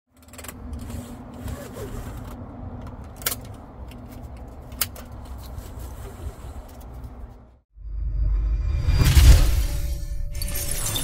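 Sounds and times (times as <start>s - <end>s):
seat belt webbing pulled out: 0.3s - 2.4s.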